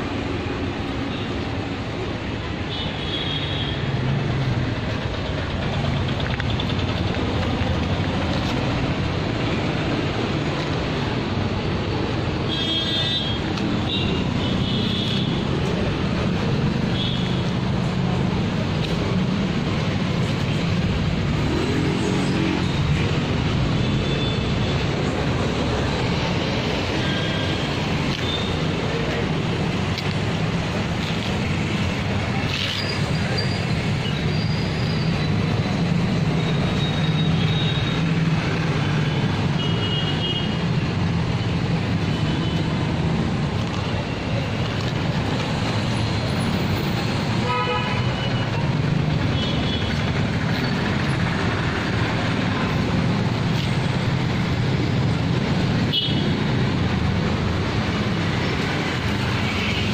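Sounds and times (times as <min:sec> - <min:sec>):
street traffic noise: 0:00.0 - 0:59.9.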